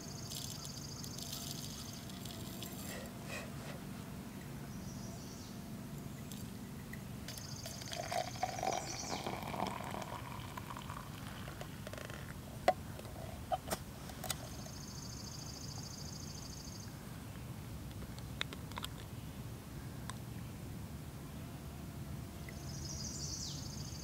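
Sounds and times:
water pouring into metal tumbler: 0.3s - 3.2s, 7.3s - 12.3s.

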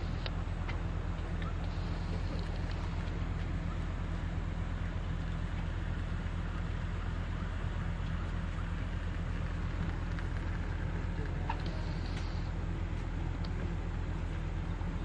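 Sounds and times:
engine running steadily: 0.0s - 15.0s.

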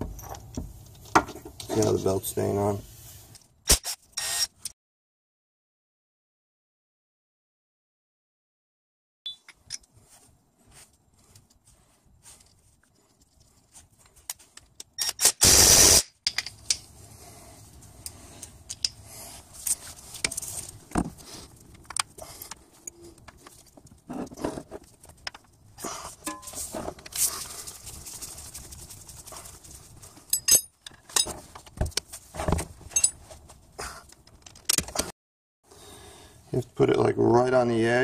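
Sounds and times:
cordless power tool burst: 3.7s - 4.5s, 15.2s - 16.0s
metal tools clinking and scraping: 26.2s - 27.3s, 30.3s - 31.5s, 32.9s - 33.3s.

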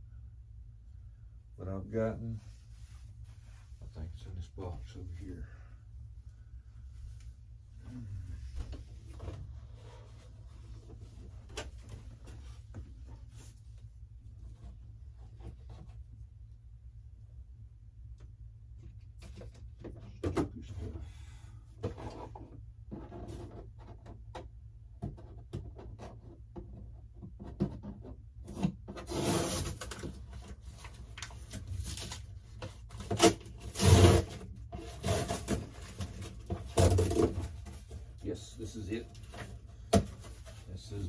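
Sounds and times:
packaging rustling and scraping: 29.0s - 38.2s.

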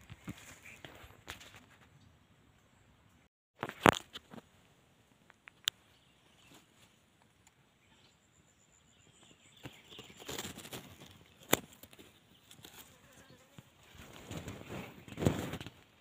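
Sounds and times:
rustling in dry leaves: 9.8s - 15.8s.

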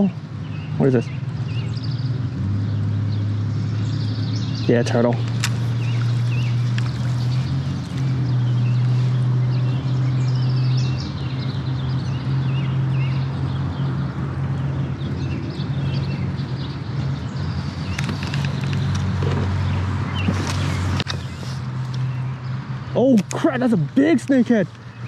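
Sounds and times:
sharp clicks: 5.1s - 6.1s, 17.8s - 19.5s, 23.1s - 23.4s.

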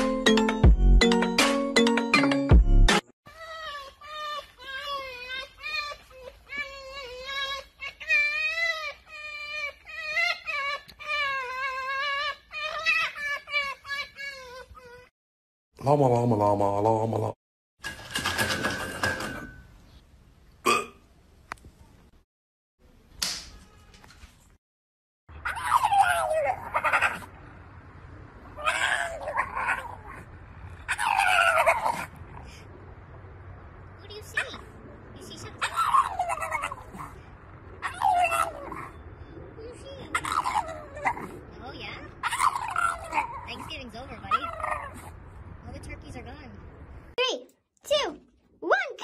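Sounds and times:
fox whimpering calls: 25.4s - 27.3s, 28.6s - 32.6s, 35.6s - 45.2s
dog howling: 25.4s - 27.4s, 28.5s - 30.3s, 30.9s - 32.2s, 35.6s - 39.0s, 40.0s - 43.7s.

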